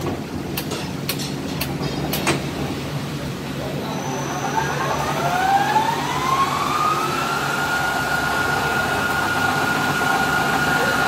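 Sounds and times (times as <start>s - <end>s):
machine running: 2.6s - 11.0s
lathe spindle whine: 3.8s - 11.0s
coolant spray: 6.9s - 11.0s.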